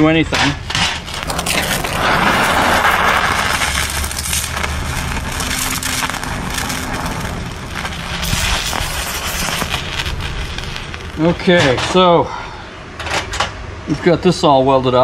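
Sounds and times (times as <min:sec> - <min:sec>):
plasma torch hissing and crackling: 0:00.9 - 0:12.3.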